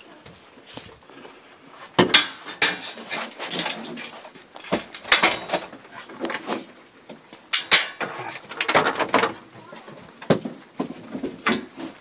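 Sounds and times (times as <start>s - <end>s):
metallic clinks and knocks: 2.0s - 5.8s, 7.5s - 9.4s.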